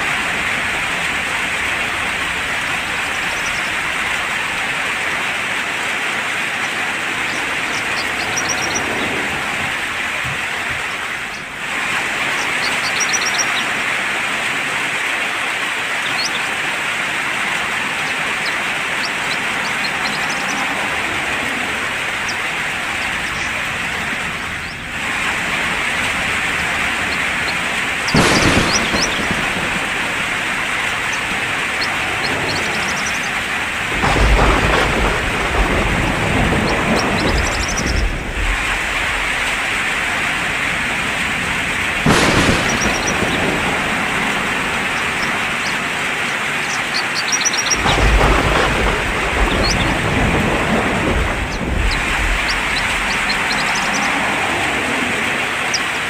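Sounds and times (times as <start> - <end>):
steady rain falling: 0.0 - 56.0
thunder clap: 0.0 - 56.0
bird chirps: 6.6 - 9.1, 12.4 - 13.6, 16.0 - 16.5, 27.0 - 33.4, 46.5 - 47.9, 51.5 - 54.1.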